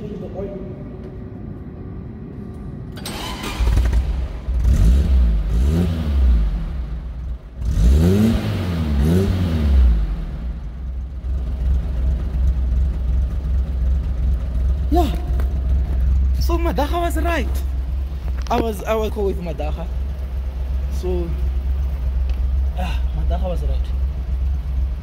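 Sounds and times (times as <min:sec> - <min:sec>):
car engine idling: 0:00.0 - 0:25.0
car engine starting: 0:00.0 - 0:25.0
engine revving: 0:03.0 - 0:12.8.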